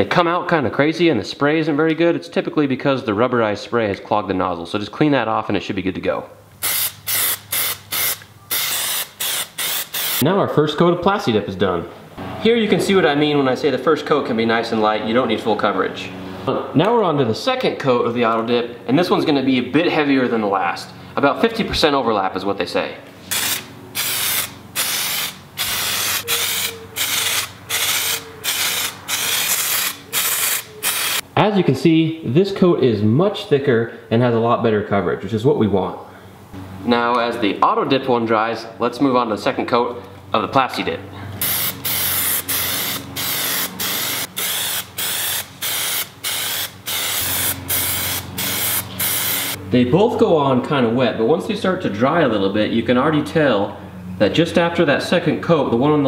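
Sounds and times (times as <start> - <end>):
aerosol spray can hissing: 6.6 - 10.2, 23.3 - 31.2, 41.4 - 49.6.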